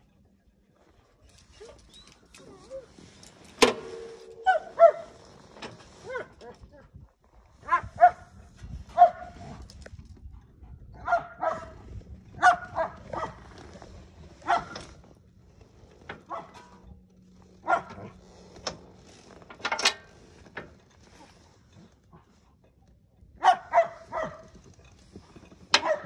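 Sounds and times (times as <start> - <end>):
dog barking: 4.4 - 5.2, 7.6 - 8.3, 9.0 - 9.4, 11.0 - 11.8, 12.4 - 13.4, 14.4 - 14.8, 16.3 - 16.6, 17.6 - 18.2, 23.4 - 24.5, 25.8 - 26.0.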